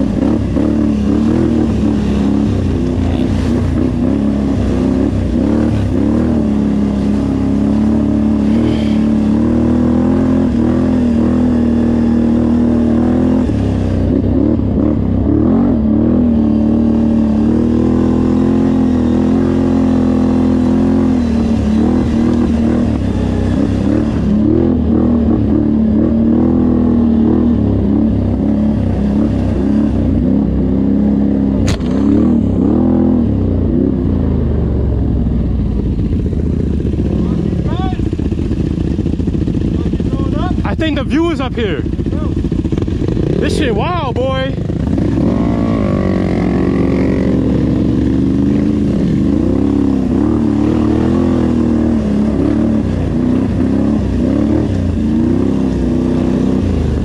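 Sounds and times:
off-road vehicle engine running: 0.0s - 57.0s
sharp click: 31.6s - 32.1s.

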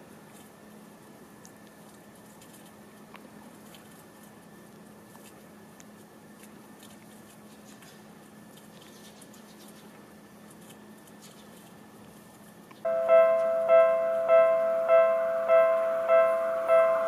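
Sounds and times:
faint outdoor hum: 0.0s - 17.0s
piano music: 12.9s - 17.0s.

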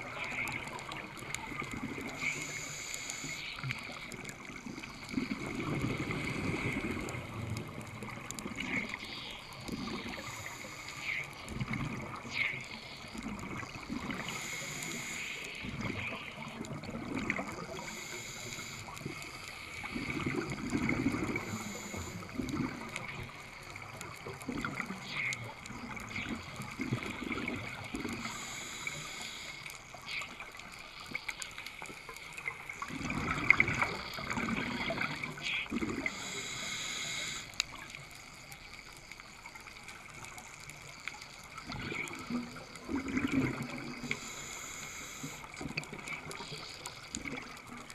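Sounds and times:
regulator hiss on inhale: 2.1s - 5.1s, 8.9s - 11.5s, 12.3s - 16.2s, 17.6s - 22.4s, 28.0s - 30.2s, 35.4s - 39.3s, 43.9s - 47.1s
gurgling bubble bursts: 15.6s - 17.8s, 19.8s - 21.6s, 22.3s - 28.3s, 32.8s - 36.2s, 41.6s - 44.1s.

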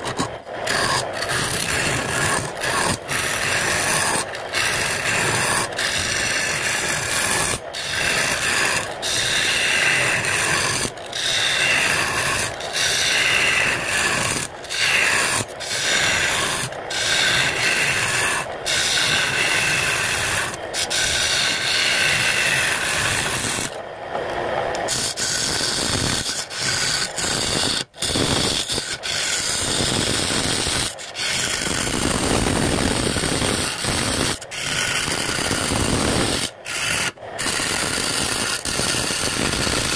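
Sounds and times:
lathe tool scraping wood: 0.0s - 39.9s.

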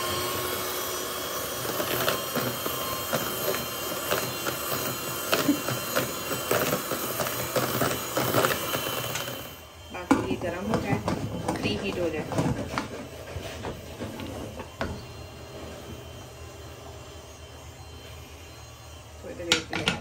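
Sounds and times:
electric hand mixer running: 0.0s - 20.0s.

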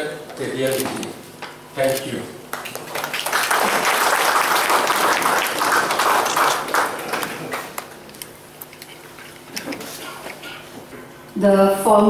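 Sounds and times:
audience applauding: 2.5s - 8.0s.

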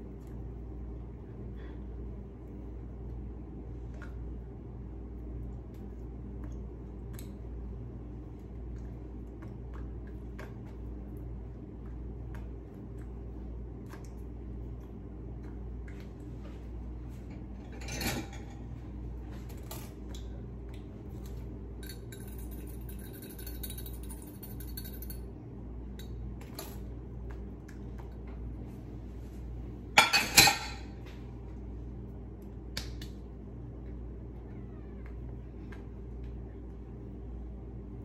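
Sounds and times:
steady low hum: 0.0s - 38.0s
whisk rattling in glass cup: 21.8s - 25.2s.

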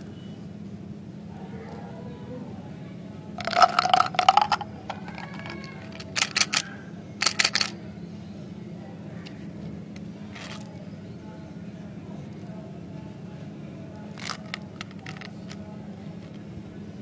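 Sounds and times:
mints rattling into plastic bottle: 3.4s - 7.8s, 14.1s - 15.6s
plastic containers clicking: 3.4s - 7.8s, 14.2s - 15.6s.

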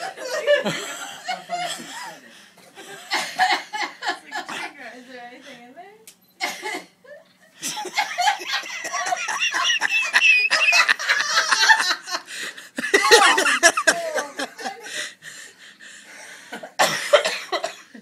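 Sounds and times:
people coughing: 0.0s - 2.3s, 2.9s - 4.8s, 6.4s - 7.0s, 7.6s - 12.0s, 12.8s - 15.2s, 16.5s - 18.0s
people laughing hard: 0.0s - 4.5s, 7.6s - 15.4s.

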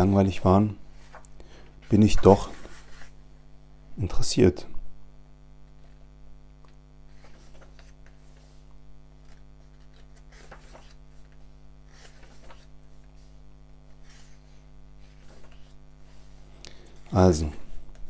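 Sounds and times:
electrical mains hum: 0.0s - 18.0s
glossy pages rustling: 0.9s - 3.2s, 7.1s - 16.5s.

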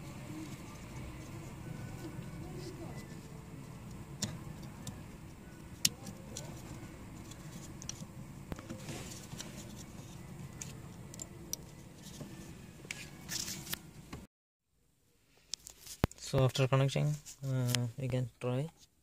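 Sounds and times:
low steady hum: 0.0s - 14.3s.

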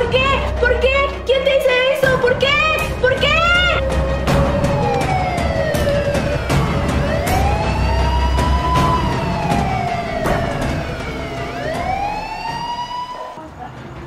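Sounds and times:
vehicle siren wailing: 3.2s - 13.4s.

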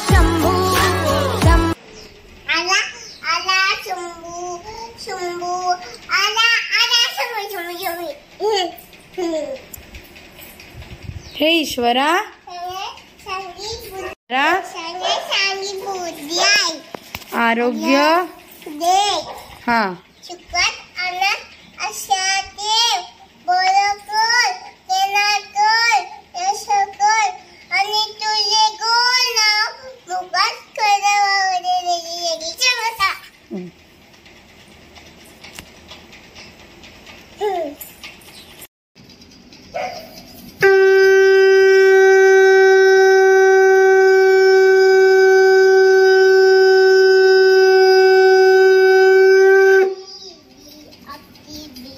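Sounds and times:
child singing: 0.0s - 1.8s
conch shell blown: 40.6s - 50.0s.

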